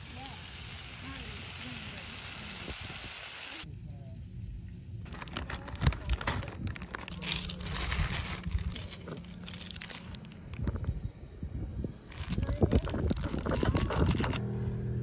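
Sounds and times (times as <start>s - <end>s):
meat sizzling on a grill: 0.0s - 3.7s
plastic packet crinkling: 5.1s - 10.9s, 12.1s - 14.4s.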